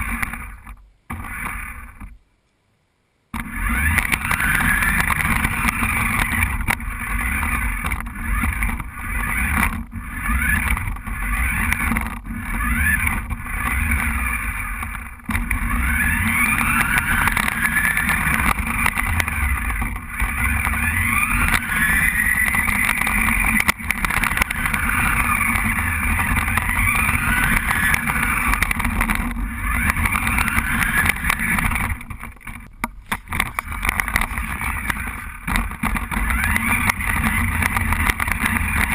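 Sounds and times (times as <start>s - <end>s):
toy car motor whining: 0.0s - 2.1s, 3.4s - 38.9s.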